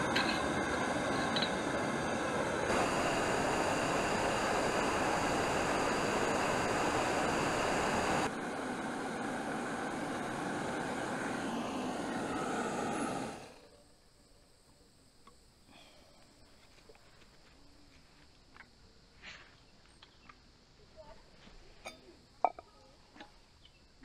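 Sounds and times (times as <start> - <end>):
steady rushing noise: 0.0 - 13.5.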